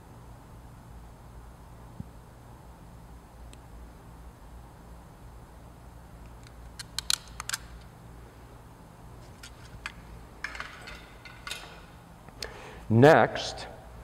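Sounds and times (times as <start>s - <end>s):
skin stapler clicks: 6.4s - 7.7s
handling sounds: 9.2s - 12.0s.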